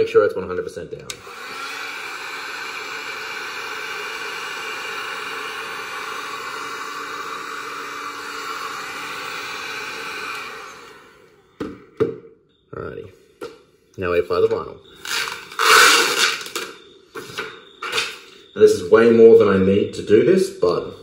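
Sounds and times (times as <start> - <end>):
heat gun fan blowing: 1.1 - 11.4.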